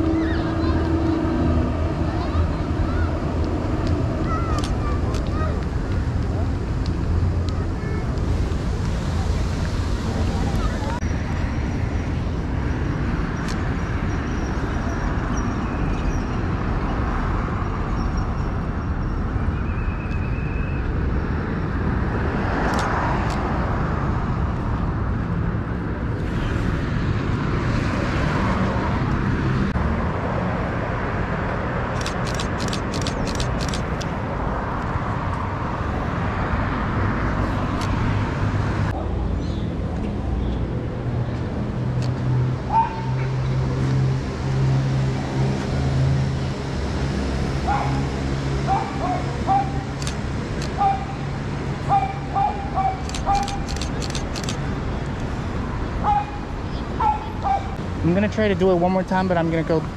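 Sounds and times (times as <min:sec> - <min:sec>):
cars passing: 0:00.0 - 0:59.9
low traffic rumble: 0:00.0 - 0:59.9
sharp clicks: 0:31.9 - 0:34.1, 0:53.0 - 0:54.6.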